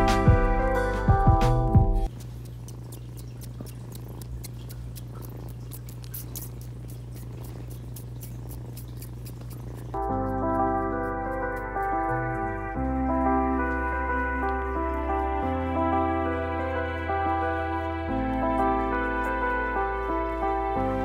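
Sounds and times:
background music: 0.0s - 2.1s, 10.0s - 21.0s
kitten sucking wet clicks: 2.1s - 12.4s.

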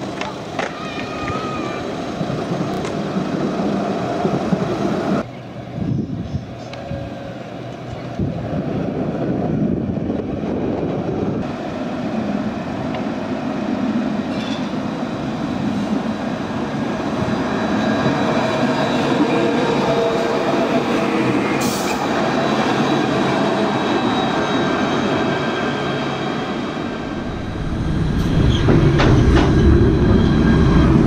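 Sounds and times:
tram rolling rumble: 0.0s - 31.0s
high tram whine: 14.2s - 31.0s.

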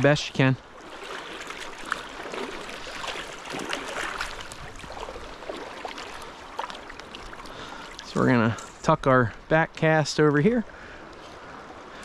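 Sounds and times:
stream rippling: 0.0s - 12.0s
water sloshing around wading legs: 0.6s - 8.9s.

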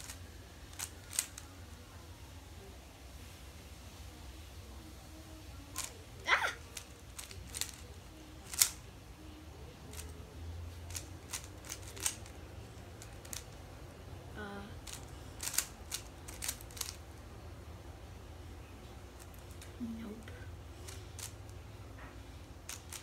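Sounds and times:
puzzle cube layers clicking: 0.0s - 1.5s, 6.7s - 7.9s, 8.5s - 8.8s, 10.9s - 12.4s, 13.0s - 13.6s, 14.8s - 17.0s, 22.7s - 23.0s.

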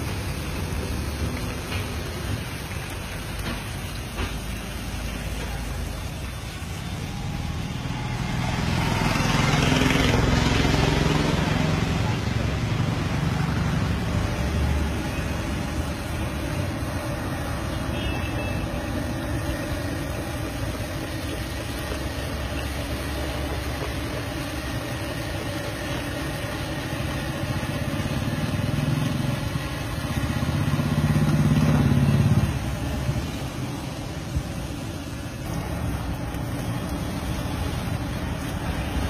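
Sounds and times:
low engine-like rumble: 0.0s - 39.0s
oil sizzling in a wok: 0.0s - 39.0s.

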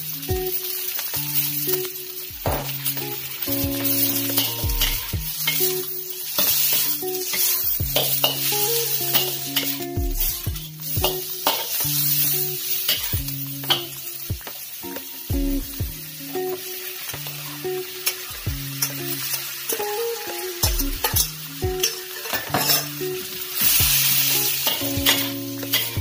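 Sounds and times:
background music with held notes: 0.0s - 26.0s
vegetables sizzling in a wok: 0.0s - 26.0s
metal spatula scraping a wok: 2.8s - 9.8s, 21.8s - 23.0s.

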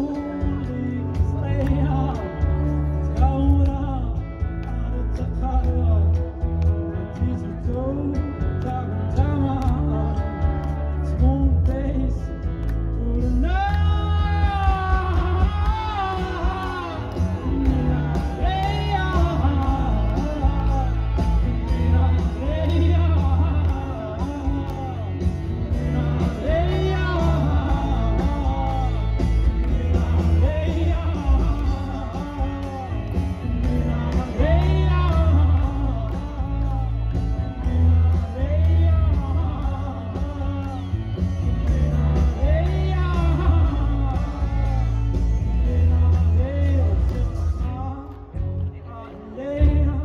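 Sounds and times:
live rock band playing: 0.0s - 50.0s.

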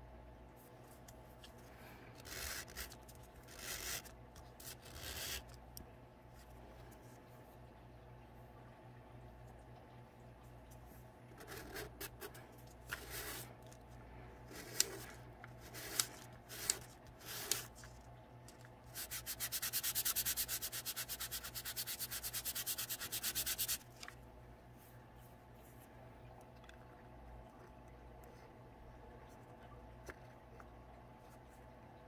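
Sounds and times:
sanding by hand on sandpaper: 2.2s - 4.1s, 13.0s - 13.4s, 15.6s - 17.7s, 18.9s - 23.8s.

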